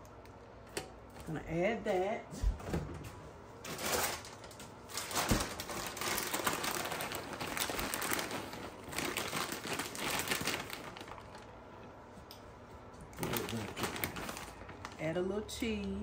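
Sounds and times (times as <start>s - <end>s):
plastic bag crinkling: 3.6s - 11.6s, 13.1s - 15.2s.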